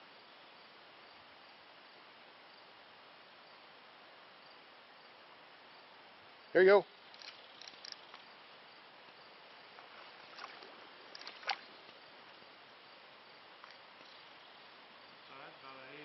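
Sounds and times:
stream hiss: 0.0s - 16.0s
small clicks and splashes: 7.1s - 8.3s, 9.8s - 12.0s, 13.6s - 14.2s.

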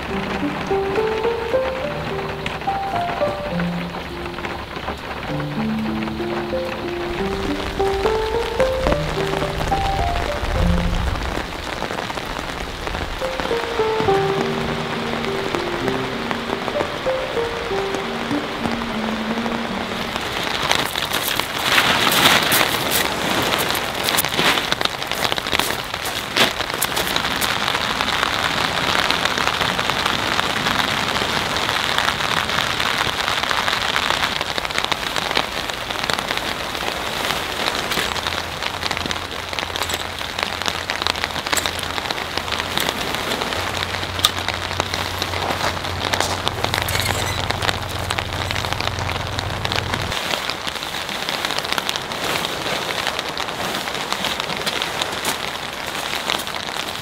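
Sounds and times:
heavy rain: 0.0s - 57.0s.

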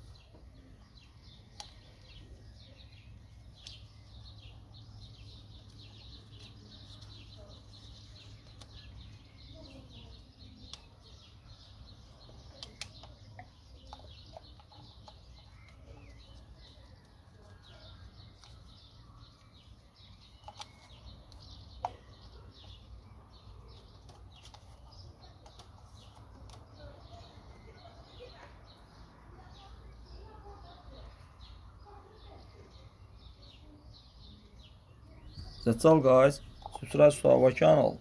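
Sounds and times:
small birds chirping: 0.0s - 38.0s
sharp clicks of connectors: 12.5s - 13.2s.

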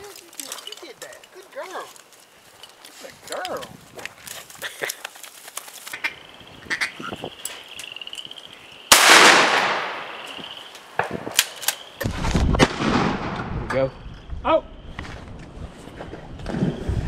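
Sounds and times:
shotgun shot: 8.9s - 10.1s, 12.0s - 13.6s.

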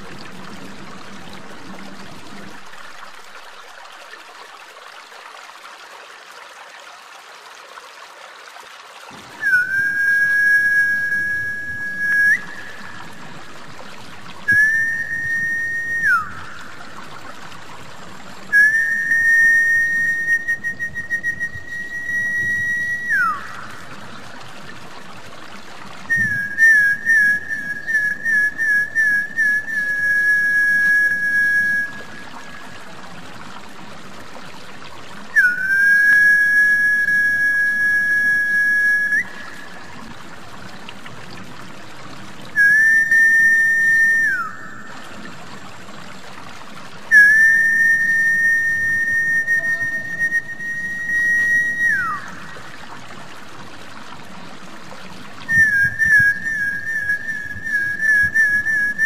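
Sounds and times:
water trickling: 0.0s - 59.0s
person whistling high notes: 9.4s - 12.9s, 14.5s - 16.6s, 18.5s - 23.6s, 26.1s - 32.6s, 35.4s - 39.6s, 42.6s - 44.9s, 47.1s - 52.5s, 55.5s - 59.0s.

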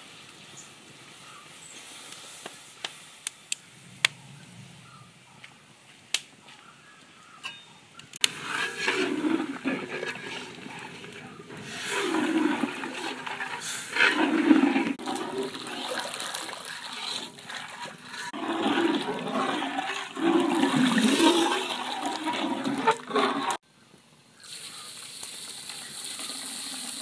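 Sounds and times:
ladle sloshing and scraping batter: 8.2s - 23.6s.

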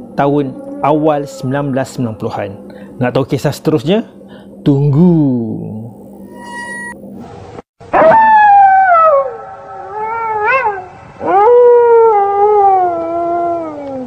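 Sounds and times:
wolf howling: 0.0s - 3.4s, 7.9s - 14.0s
faint high ringing tone: 0.0s - 7.4s.

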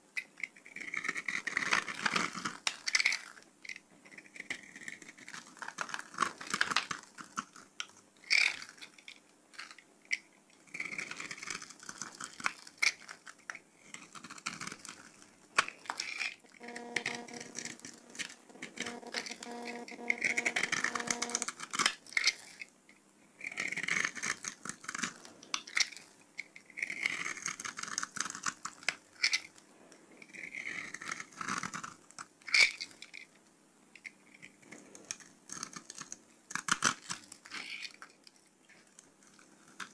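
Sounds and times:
soap crackling: 4.1s - 22.7s.

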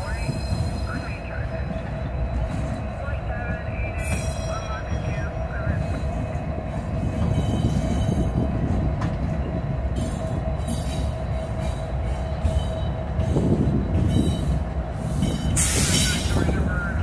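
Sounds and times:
diesel locomotive rumble: 0.0s - 17.0s.

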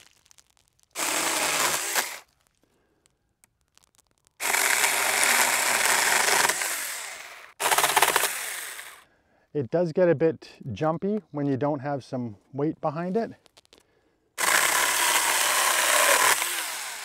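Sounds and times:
electric chainsaw cutting branches: 1.0s - 2.2s, 4.4s - 9.0s, 14.4s - 17.0s.

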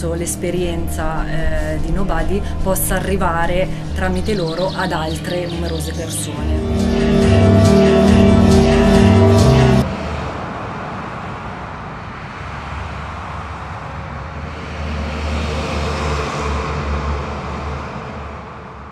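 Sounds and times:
music: 0.0s - 10.3s
low rumbling noise: 0.0s - 18.9s.

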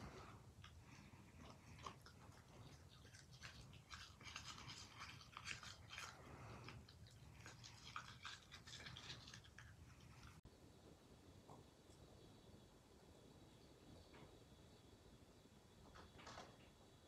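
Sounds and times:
puppy chewing brush: 0.0s - 10.4s
toothbrush scrubbing teeth: 0.0s - 10.4s.

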